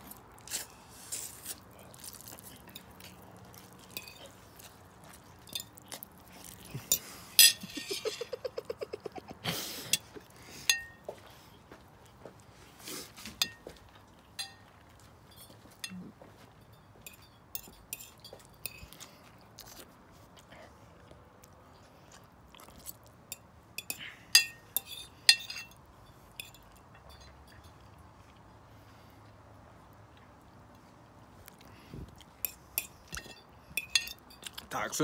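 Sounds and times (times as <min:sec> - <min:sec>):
fork clinking on plate: 0:03.9 - 0:04.3, 0:06.8 - 0:08.3, 0:13.4 - 0:13.8, 0:14.4 - 0:14.7, 0:16.6 - 0:19.0, 0:23.3 - 0:25.8, 0:32.4 - 0:34.6.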